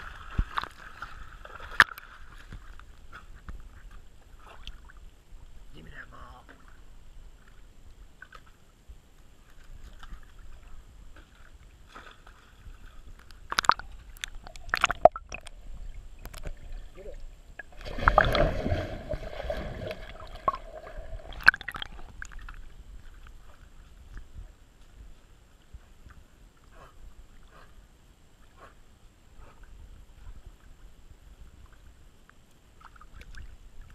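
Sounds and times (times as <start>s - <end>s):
muffled water sloshing and splashing: 0.0s - 5.7s, 6.4s - 33.9s.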